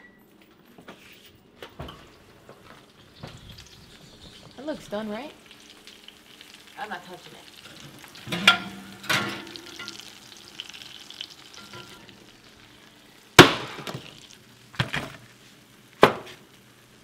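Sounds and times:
fish sizzling: 0:02.7 - 0:17.0
glass dishes clinking on oven rack: 0:08.2 - 0:10.1, 0:11.5 - 0:12.1.

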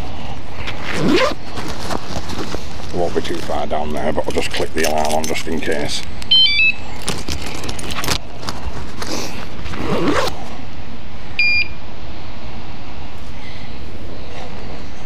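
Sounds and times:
electronic alarm chirps: 0:06.3 - 0:06.8, 0:11.4 - 0:11.8
short beep: 0:11.4 - 0:11.8.

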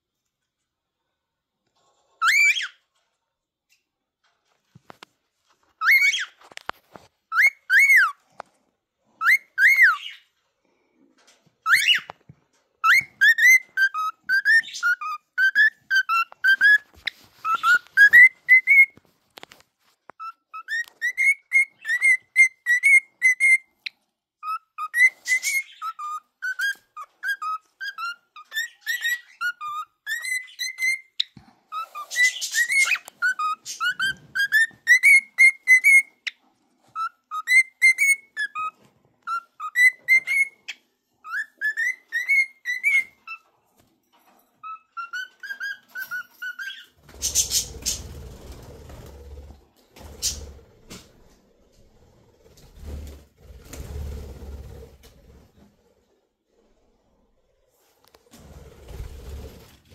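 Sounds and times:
cockatiel whistling: 0:02.2 - 0:02.8, 0:05.8 - 0:06.3, 0:07.3 - 0:08.2, 0:09.2 - 0:10.2, 0:11.6 - 0:12.1, 0:12.8 - 0:19.0, 0:20.2 - 0:23.7, 0:24.4 - 0:36.4, 0:37.0 - 0:43.4, 0:44.6 - 0:48.0.

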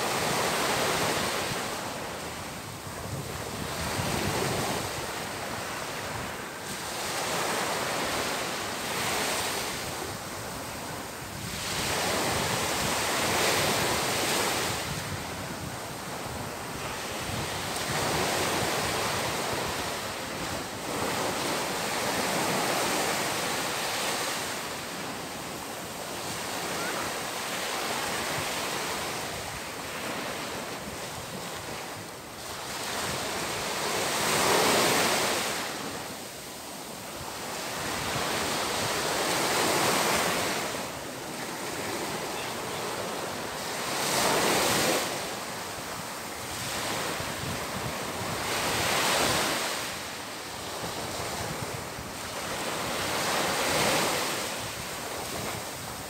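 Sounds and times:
small waves breaking on beach: 0:00.0 - 0:56.0.

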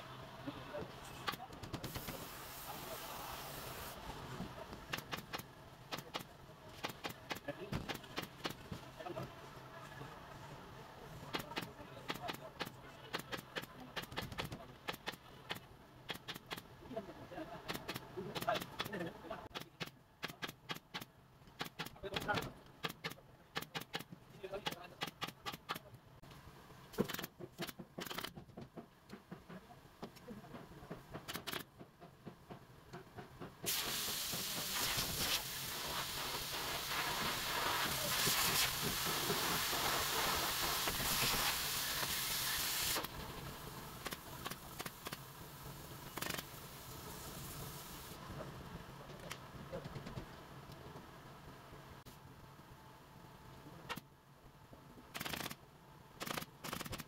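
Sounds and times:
loud steady hiss: 0:01.7 - 0:08.6, 0:33.6 - 0:48.9
workshop clicks and knocks: 0:26.9 - 0:34.7.

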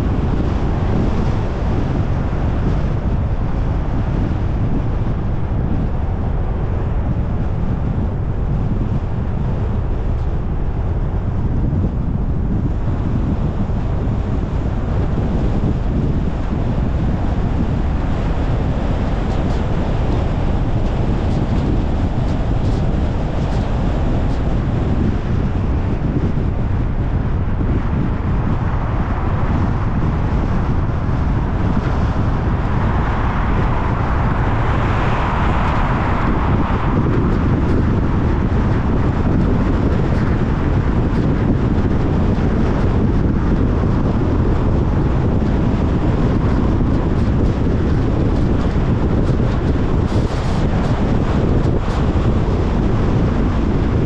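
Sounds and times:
car tyre and road noise: 0:00.0 - 0:54.0
wind noise: 0:00.0 - 0:54.0.

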